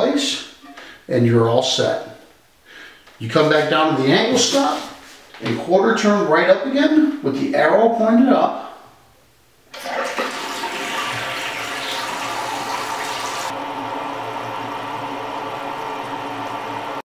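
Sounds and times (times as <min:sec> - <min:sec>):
toilet tank refilling hiss: 0:09.7 - 0:13.6.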